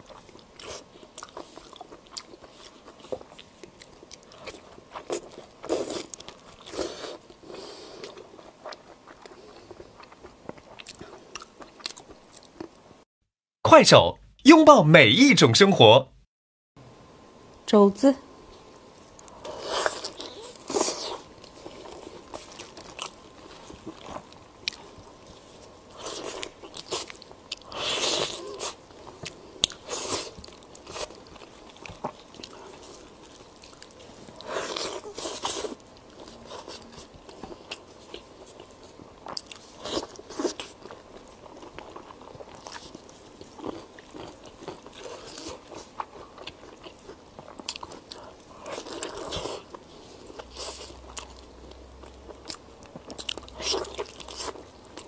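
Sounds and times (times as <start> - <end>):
biting and chewing meat: 19.2 - 55.0.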